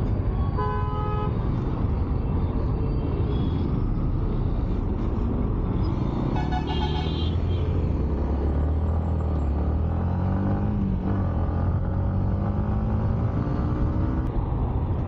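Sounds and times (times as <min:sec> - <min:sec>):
motorcycle engine and road rumble: 0:00.0 - 0:15.0
vehicle horn tooting: 0:06.4 - 0:07.4.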